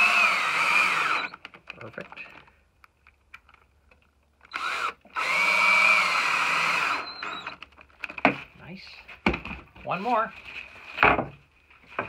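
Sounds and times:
cordless drill driving screw: 0:00.0 - 0:01.4, 0:04.4 - 0:07.7.

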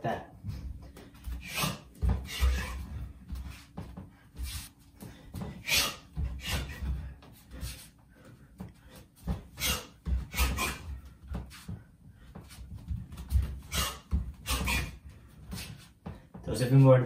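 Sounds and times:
bare feet on wooden floor: 0:00.4 - 0:16.5
sharp swishing noises: 0:01.4 - 0:02.8.

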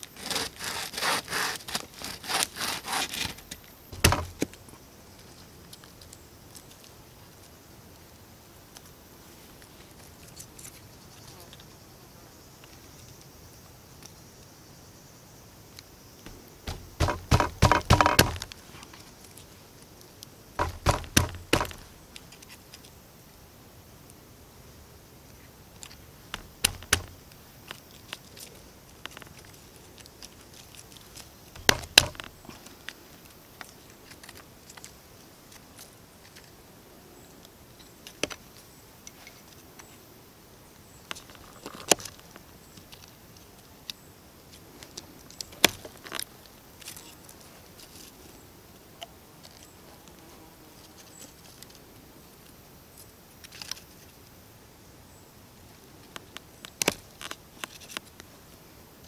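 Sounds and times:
knife cutting wood: 0:00.0 - 0:04.6, 0:16.3 - 0:18.6, 0:20.6 - 0:21.9, 0:26.4 - 0:27.2, 0:31.6 - 0:32.4
faint steady hiss: 0:00.0 - 0:59.0.

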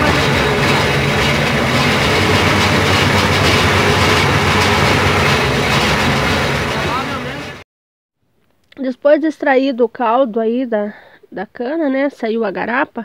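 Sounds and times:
roller mill crushing cane: 0:00.0 - 0:07.6.

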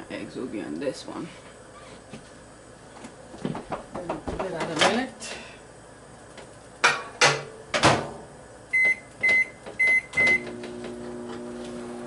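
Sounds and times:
microwave oven humming: 0:00.0 - 0:12.0
short keypad beeps: 0:08.8 - 0:10.4.

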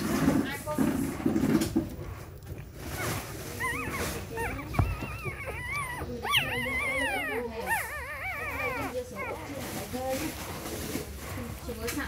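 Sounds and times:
puppies whimpering and squeaking: 0:01.6 - 0:11.3
soft bump: 0:03.8 - 0:06.0.

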